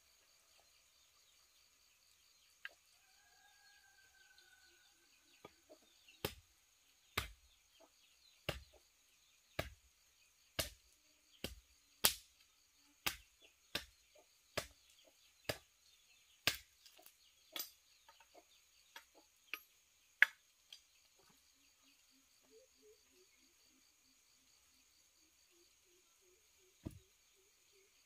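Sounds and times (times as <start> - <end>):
hand tool chopping strikes: 6.2 - 6.4, 7.2 - 7.4, 8.4 - 8.8, 9.6 - 9.8, 10.6 - 10.8, 11.4 - 12.3, 13.0 - 13.9, 14.6 - 14.8, 15.5 - 15.7, 16.4 - 16.7.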